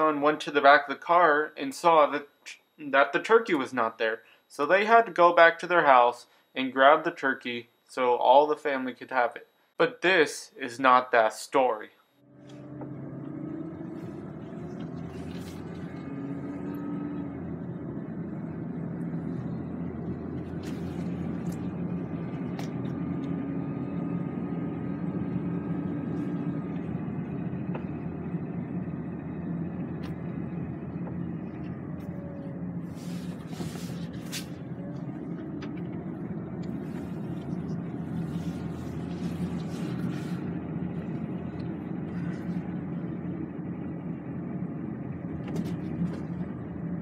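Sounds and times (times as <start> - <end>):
engine and road noise hum: 12.2 - 47.0.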